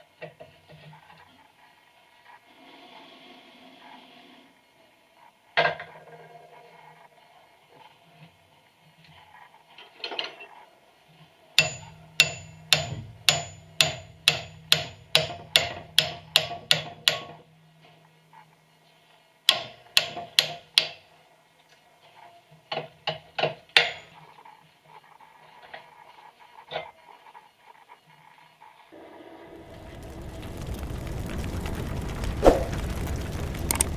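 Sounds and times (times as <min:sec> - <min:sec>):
hammer striking metal chisel: 0:11.6 - 0:17.4, 0:19.5 - 0:21.0.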